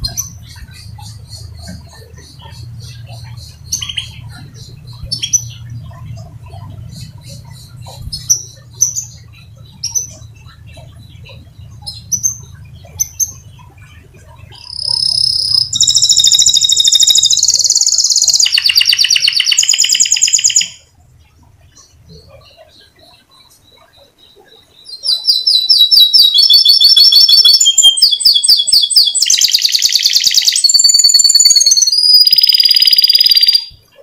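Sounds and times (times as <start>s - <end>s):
low steady hum: 0.0s - 26.3s
canary chirping: 0.0s - 34.0s
canary singing fast trills: 0.0s - 34.0s.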